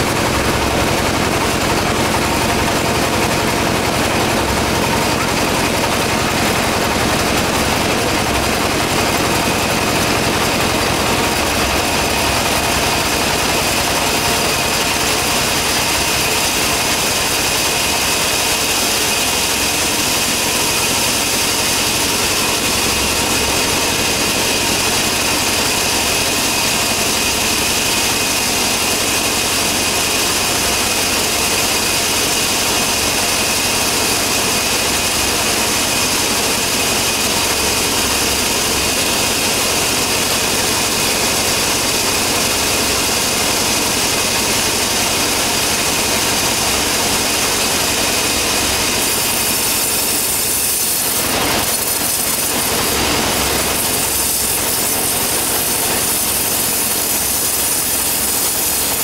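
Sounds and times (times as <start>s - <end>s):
band sawmill running: 0.0s - 59.0s.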